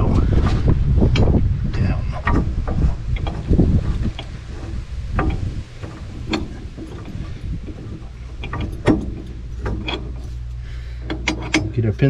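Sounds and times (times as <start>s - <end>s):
wind rumble on microphone: 0.0s - 12.0s
metal clicks and knocks: 1.0s - 12.0s.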